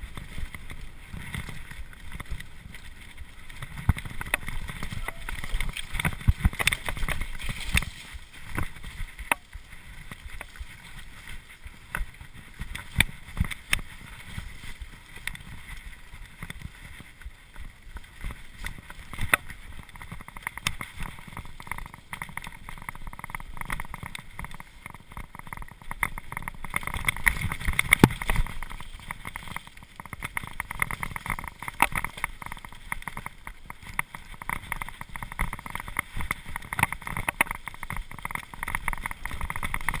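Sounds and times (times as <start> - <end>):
wind on microphone: 0.0 - 17.9
bike rattling over bumps: 0.0 - 40.0
bike tyre rumble: 0.0 - 40.0.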